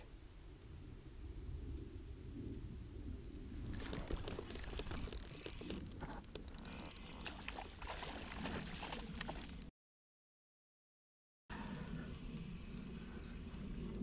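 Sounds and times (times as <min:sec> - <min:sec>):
rapid clicks and crackles: 0:03.7 - 0:09.7, 0:11.6 - 0:14.0.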